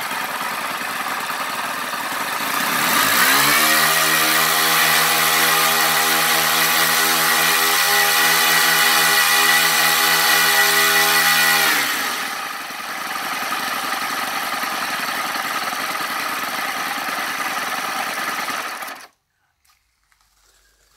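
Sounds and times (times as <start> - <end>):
model aircraft engines running: 0.0 - 19.1.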